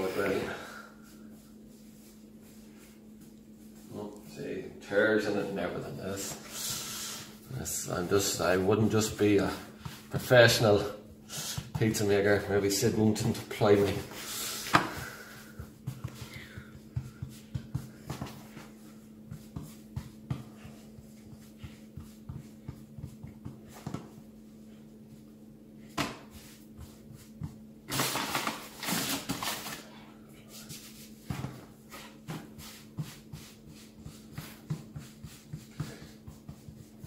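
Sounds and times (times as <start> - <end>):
steady low hum: 0.0 - 37.0
hands patting dough: 7.6 - 27.9, 30.5 - 37.0.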